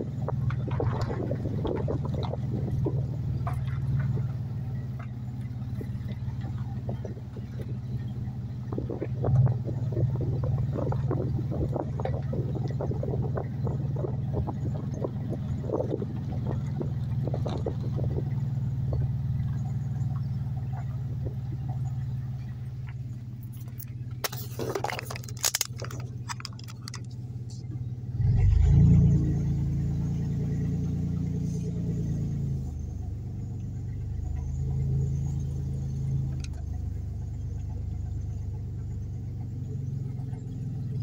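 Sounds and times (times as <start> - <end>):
car engine and road hum: 0.0 - 41.0
light rattling clicks: 22.8 - 27.8.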